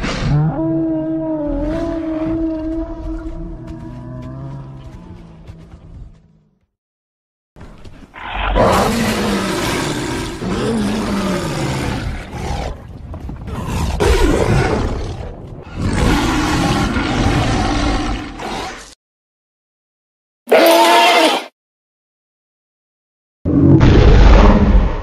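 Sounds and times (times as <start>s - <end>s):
dinosaur roar: 0.0s - 5.8s, 8.2s - 12.8s, 13.5s - 18.9s, 23.5s - 25.0s.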